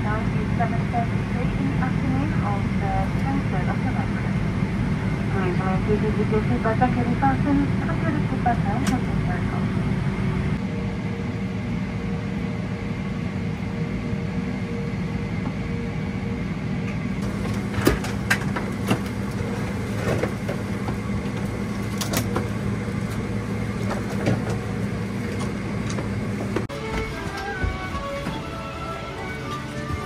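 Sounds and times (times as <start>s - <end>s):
aircraft cabin rumble: 0.0s - 30.0s.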